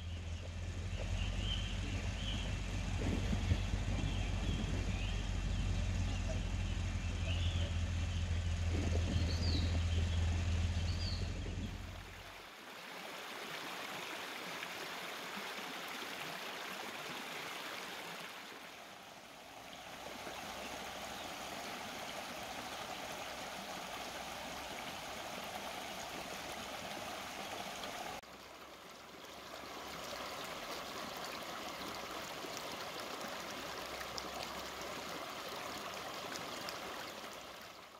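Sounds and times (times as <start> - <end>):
bird chirps: 0.0 - 11.8
low steady drone: 0.0 - 12.2
stream running over stones: 0.0 - 37.9.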